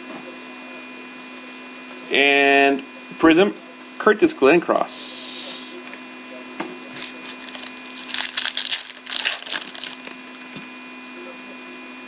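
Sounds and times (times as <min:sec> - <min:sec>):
cards shuffling: 0:06.9 - 0:10.3.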